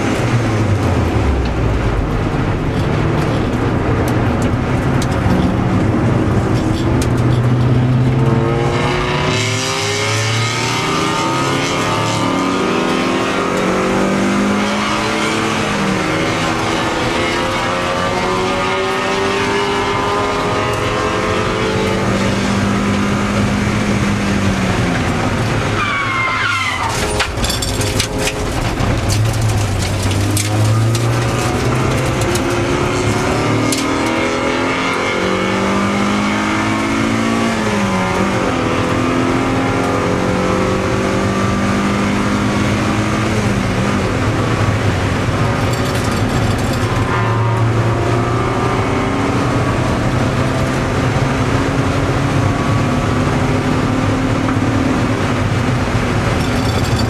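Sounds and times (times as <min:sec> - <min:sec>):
race car engine accelerating: 0:00.0 - 0:57.0
wind and tyre noise: 0:00.0 - 0:57.0
knocks and rattles: 0:26.8 - 0:34.2, 0:45.5 - 0:47.0, 0:56.2 - 0:57.0.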